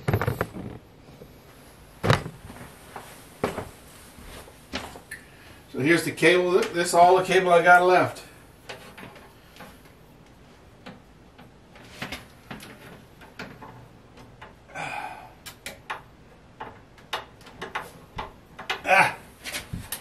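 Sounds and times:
cable clicks and taps: 0:15.4 - 0:18.8.

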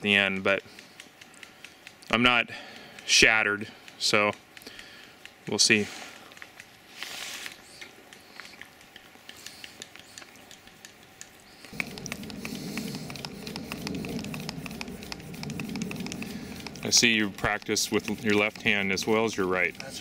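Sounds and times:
person chewing bread: 0:00.6 - 0:05.5, 0:06.1 - 0:16.8
steady low rumble: 0:11.7 - 0:20.0.

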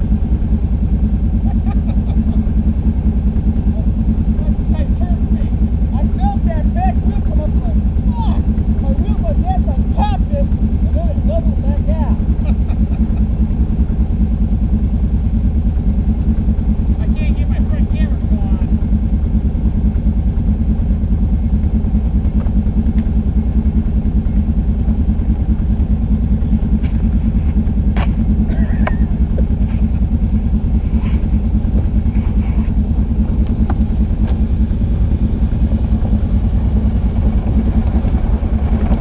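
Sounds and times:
quad engine running low: 0:00.0 - 0:39.0.

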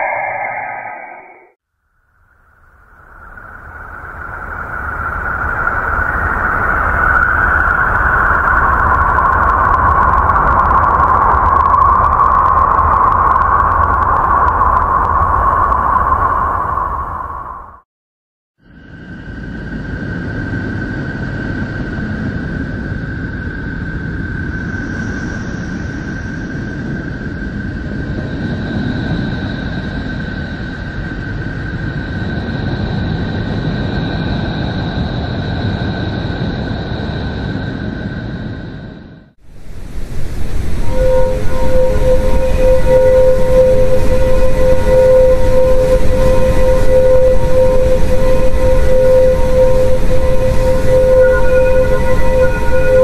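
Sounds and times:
steady hissing drone: 0:00.0 - 0:01.5, 0:02.2 - 0:17.0, 0:39.4 - 0:53.0
high whistle-like tone: 0:00.0 - 0:01.6, 0:02.8 - 0:17.8, 0:40.0 - 0:53.0
low rumble: 0:00.0 - 0:01.6, 0:02.9 - 0:17.8.

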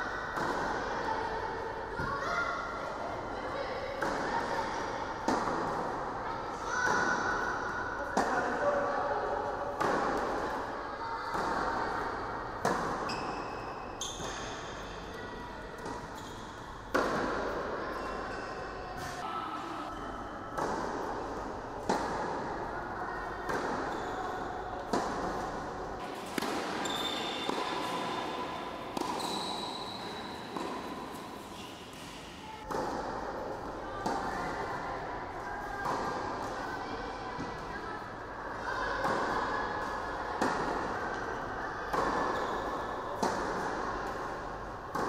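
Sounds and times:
tennis balls struck by rackets: 0:00.3 - 0:00.8, 0:04.0 - 0:04.6, 0:05.2 - 0:06.1, 0:09.7 - 0:10.7, 0:11.3 - 0:15.1, 0:15.8 - 0:17.8, 0:20.6 - 0:22.7, 0:23.4 - 0:34.8, 0:35.8 - 0:36.7, 0:39.0 - 0:45.0.

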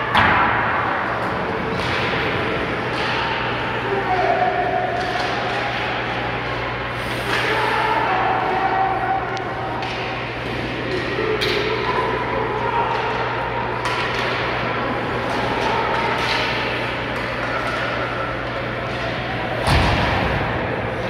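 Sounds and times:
murmur of crowd voices: 0:00.0 - 0:21.0
cracks of sticks and puck: 0:00.1 - 0:03.7, 0:04.8 - 0:07.8, 0:12.9 - 0:20.1.

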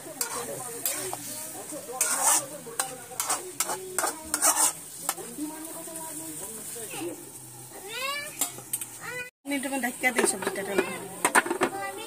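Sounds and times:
metal spatula scraping pan: 0:00.0 - 0:05.4
meat sizzling: 0:00.0 - 0:12.0.

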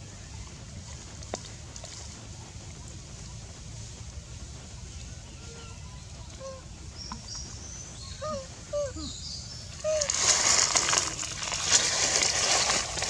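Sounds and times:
crackling hiss: 0:00.0 - 0:13.0
baby monkey whimpering: 0:08.0 - 0:10.2.

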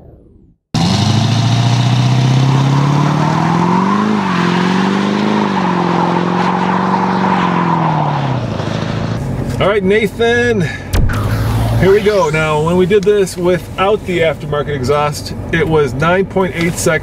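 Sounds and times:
pickup truck engine revving: 0:00.8 - 0:09.2.

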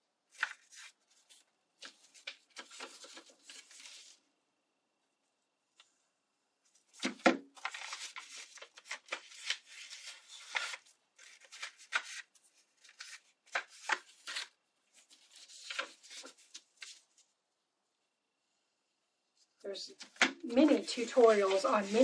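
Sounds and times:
paper rustling and crinkling: 0:00.3 - 0:04.3, 0:06.6 - 0:17.3, 0:19.9 - 0:22.0.

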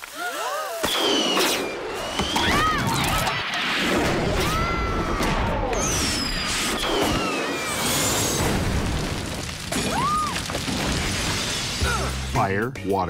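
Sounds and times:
fireworks crackling and banging: 0:00.0 - 0:12.4
whistling rockets: 0:00.8 - 0:12.2.

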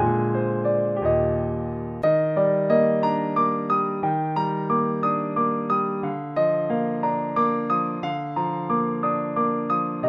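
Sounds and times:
keyboard playing evenly spaced notes: 0:00.0 - 0:10.0.

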